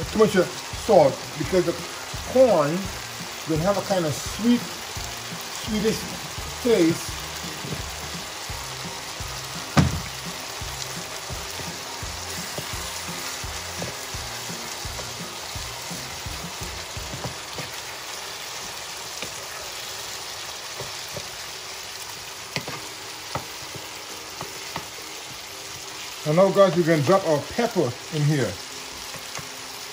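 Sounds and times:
vegetables sizzling in a skillet: 0.0 - 29.9.

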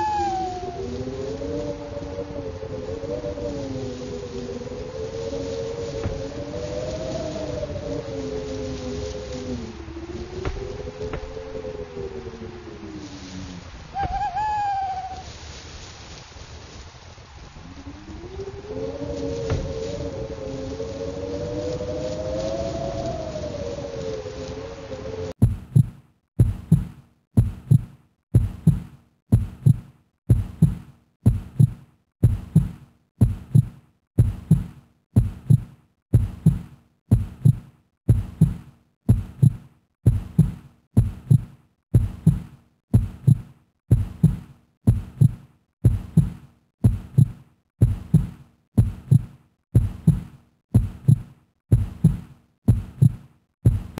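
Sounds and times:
heartbeat double thump: 25.4 - 54.0.

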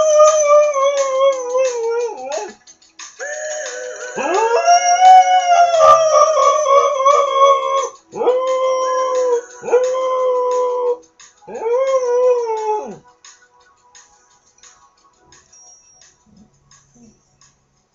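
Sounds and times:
dog howling: 0.0 - 2.5, 4.1 - 13.0.

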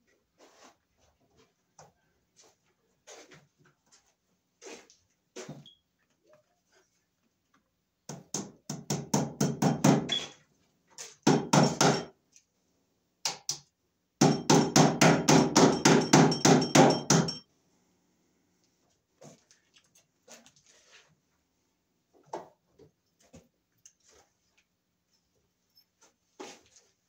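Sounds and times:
hammer striking wooden joists: 8.1 - 10.3, 11.2 - 12.2, 14.2 - 17.4.

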